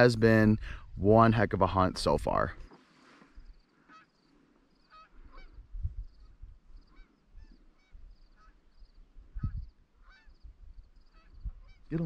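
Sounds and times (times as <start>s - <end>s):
geese honking: 3.8s - 5.6s, 6.8s - 8.7s, 9.4s - 10.5s, 11.1s - 12.0s.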